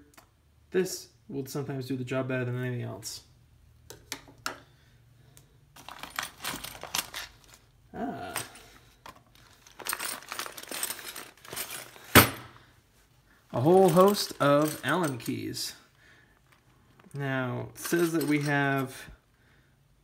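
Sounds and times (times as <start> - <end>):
small metal tools clinking: 5.8 - 12.5, 13.6 - 15.8, 17.8 - 19.0.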